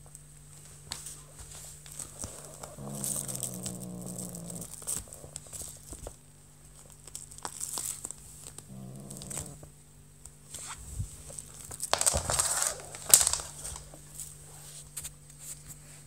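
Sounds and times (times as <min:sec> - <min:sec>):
kitten growling: 0:02.2 - 0:05.6, 0:08.6 - 0:09.7.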